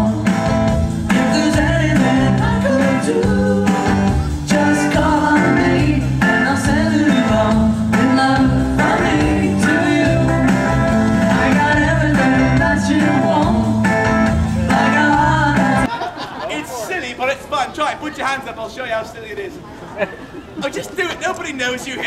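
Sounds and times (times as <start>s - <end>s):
drums keeping the beat: 0.0s - 15.9s
electric guitars: 0.0s - 15.9s
person singing lead vocal: 0.0s - 15.9s
rock band playing: 0.0s - 15.9s.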